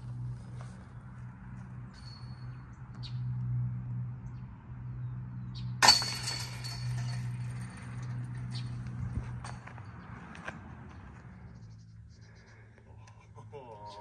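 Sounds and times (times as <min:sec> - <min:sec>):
disc clanging on metal basket: 0:05.8 - 0:08.8.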